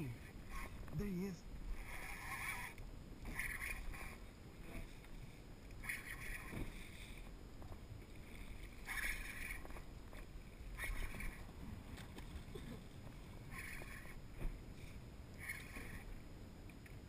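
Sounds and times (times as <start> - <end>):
water lapping against boat hull: 1.6 - 16.2
fishing reel buzzing: 1.7 - 4.3, 5.8 - 6.6, 8.8 - 9.8, 10.8 - 11.5, 13.4 - 14.2, 15.4 - 16.2.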